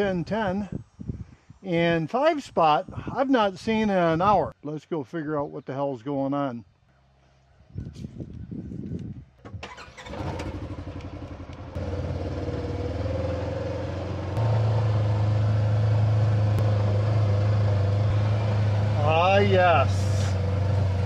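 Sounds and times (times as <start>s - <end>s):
vehicle engine running: 10.0s - 21.0s.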